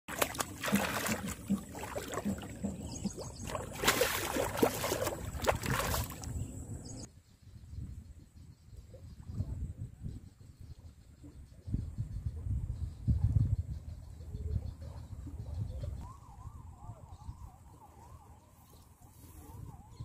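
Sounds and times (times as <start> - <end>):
fish splashing in water: 0.1 - 6.4.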